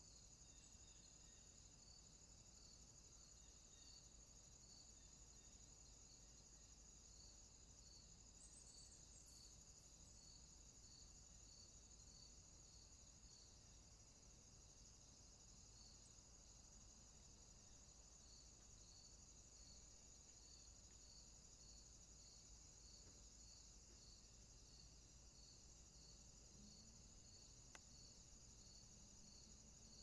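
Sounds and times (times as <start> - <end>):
insect chirping: 0.0 - 30.0
faint click: 27.7 - 27.9.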